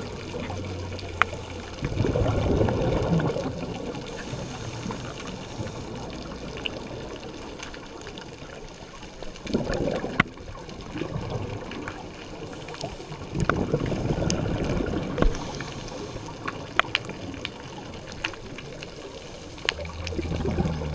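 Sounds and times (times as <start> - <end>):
underwater bubbling and gurgling: 0.0 - 20.9.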